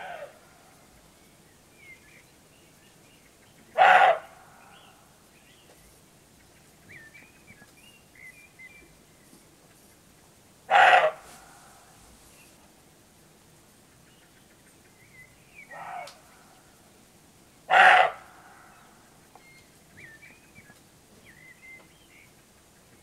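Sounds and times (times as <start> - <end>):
roe deer barking: 0.0 - 0.4, 3.8 - 4.9, 10.7 - 11.9, 15.6 - 16.5, 17.7 - 18.9
faint bird chirps: 18.3 - 23.0.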